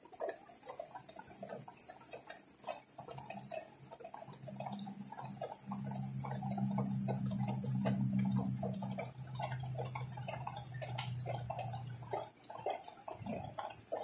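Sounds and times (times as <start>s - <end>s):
rainwater dripping: 0.0s - 14.0s
rain hiss: 3.0s - 13.7s
steady low hum: 4.3s - 13.7s.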